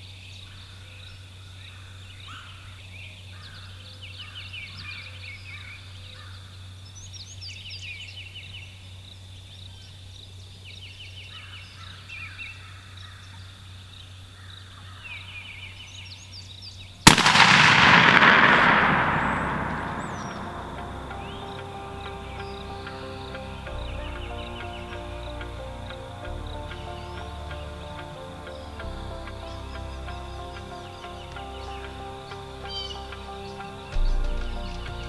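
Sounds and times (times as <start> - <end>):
shotgun blast echoing: 17.1 - 22.7
trilling bird calls: 18.9 - 35.0.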